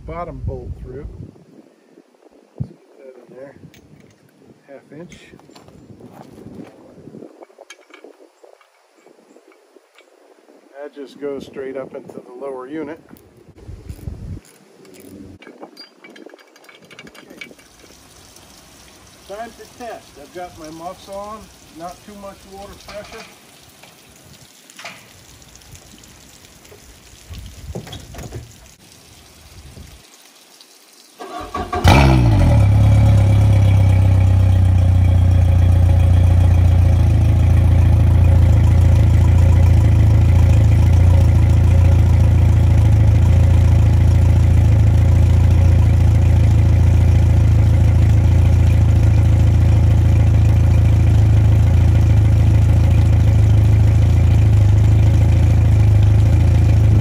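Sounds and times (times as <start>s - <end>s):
outboard motor idling: 31.8s - 57.0s.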